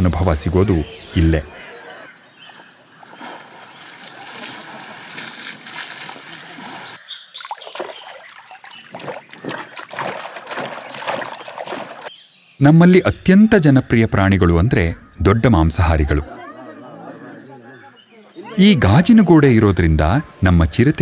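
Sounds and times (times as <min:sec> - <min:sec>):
elephants splashing water: 0:02.6 - 0:12.1
pelicans splashing wings: 0:03.0 - 0:12.1.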